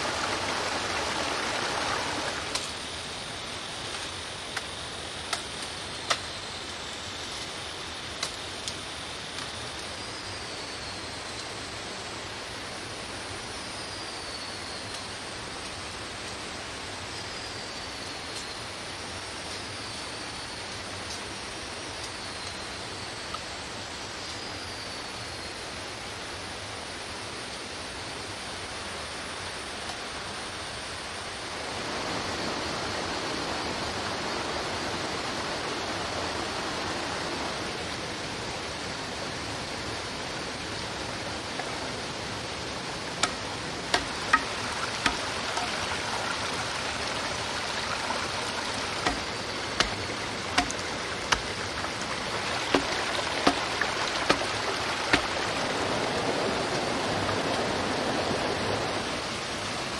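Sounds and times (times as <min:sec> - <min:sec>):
stream running over rocks: 0:00.0 - 0:59.9
knife striking bamboo: 0:43.2 - 0:45.8, 0:49.0 - 0:51.6, 0:52.7 - 0:54.5, 0:55.1 - 0:55.3.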